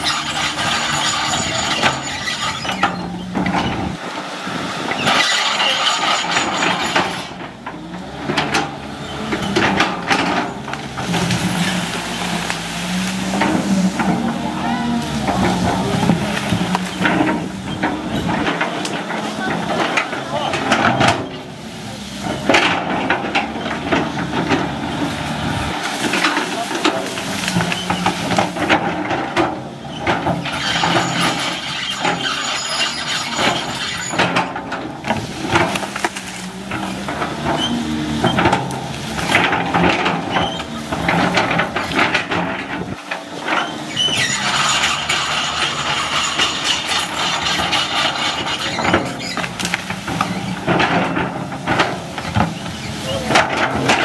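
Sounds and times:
high metallic squeal: 0.0 - 3.9, 5.0 - 7.3, 29.8 - 34.5, 43.5 - 50.6
excavator diesel engine under load: 0.0 - 54.0.

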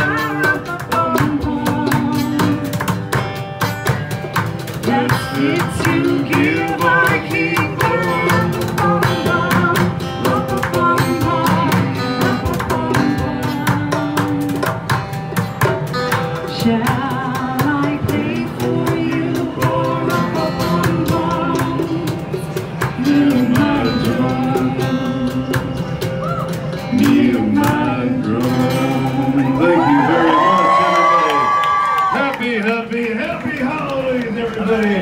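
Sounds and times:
woman singing into microphone: 0.0 - 2.8, 4.8 - 14.9, 16.4 - 30.5
instrumental accompaniment: 0.0 - 31.1.

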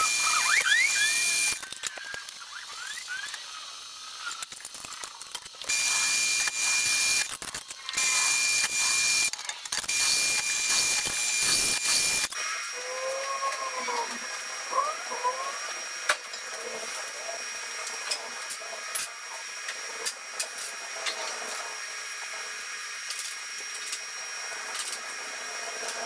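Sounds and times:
drill press cutting steel: 0.0 - 3.4, 5.6 - 12.4
high whine: 0.0 - 4.2, 5.6 - 7.4, 8.0 - 15.6.

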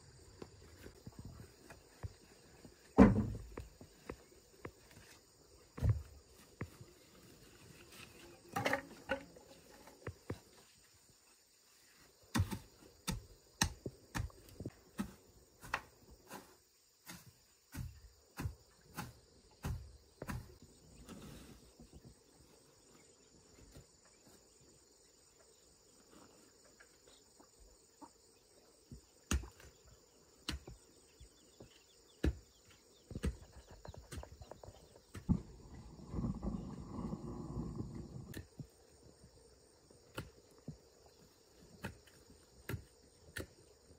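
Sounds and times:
insects chirring: 0.0 - 43.9
hoe striking the ground: 12.3 - 20.5, 41.8 - 43.7.

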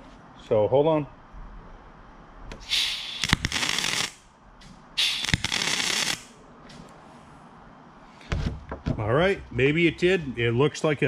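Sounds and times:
welder arc crackling: 2.7 - 4.3, 5.0 - 6.4.

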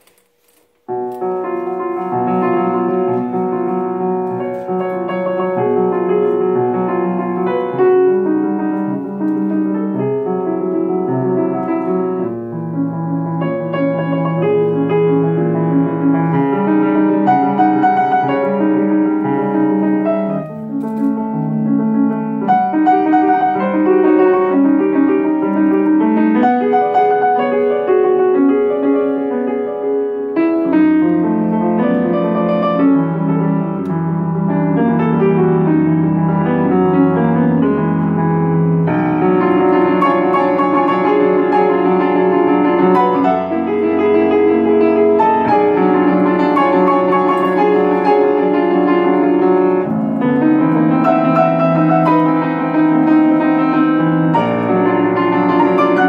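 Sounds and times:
grand piano playing chords: 0.0 - 56.0.

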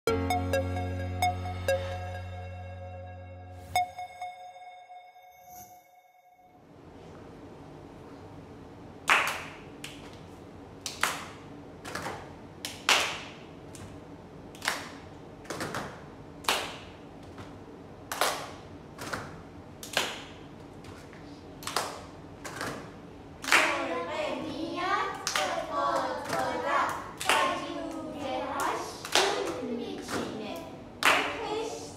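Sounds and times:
people clapping in unison: 9.0 - 10.2, 10.8 - 21.0, 21.6 - 31.7.

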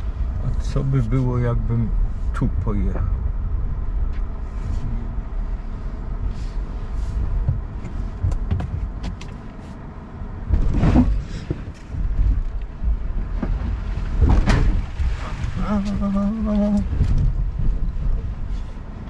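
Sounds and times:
tyres and suspension rumbling: 0.0 - 19.0
vehicle jolt: 6.0 - 19.0.

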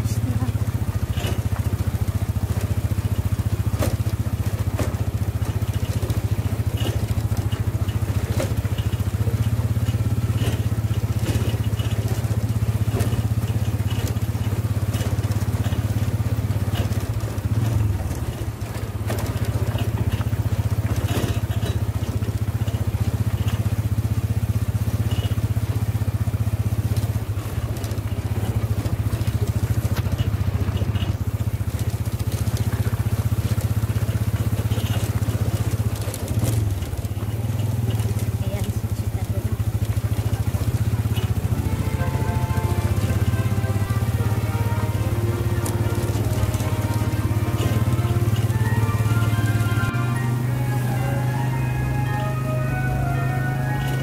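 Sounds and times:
motorcycle engine running: 0.0 - 54.0
vehicle body rattling: 0.0 - 54.0.

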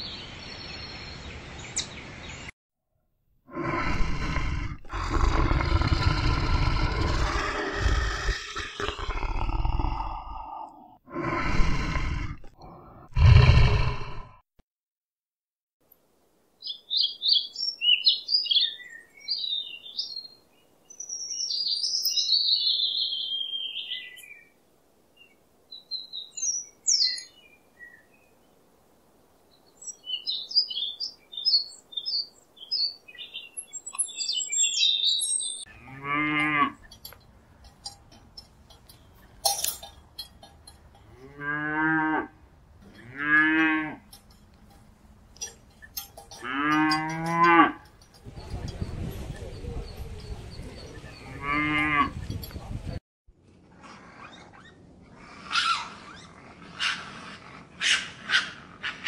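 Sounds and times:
small birds chirping: 0.0 - 2.6, 16.6 - 28.7, 29.4 - 35.8, 36.8 - 41.2, 44.0 - 53.0
cow mooing: 35.7 - 37.1, 41.0 - 44.3, 45.4 - 48.2, 51.2 - 52.2.

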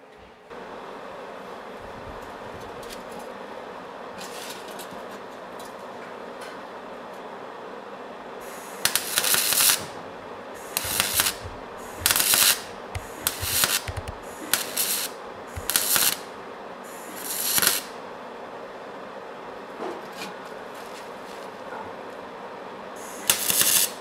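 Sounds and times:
welding arc crackling and hissing: 8.4 - 18.0, 23.0 - 24.0.

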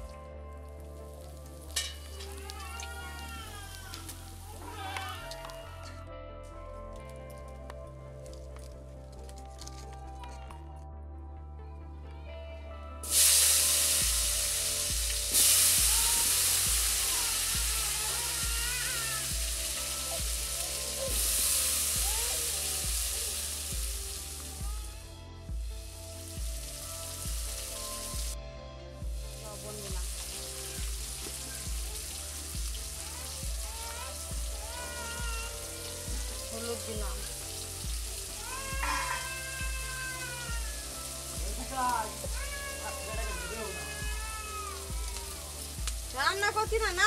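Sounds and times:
potatoes sizzling in hot oil: 1.1 - 4.8, 13.0 - 24.9, 25.5 - 28.4, 29.4 - 47.0
music with deep beat: 13.0 - 36.4, 37.0 - 47.0.

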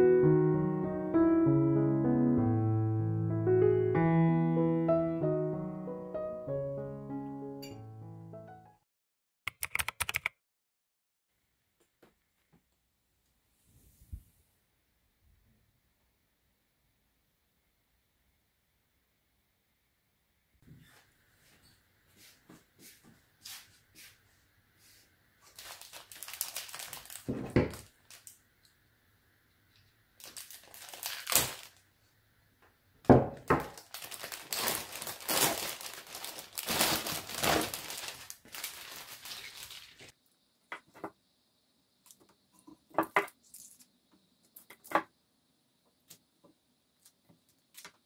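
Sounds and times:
crinkling and rustling: 25.4 - 28.4, 30.2 - 31.8, 33.4 - 40.2.

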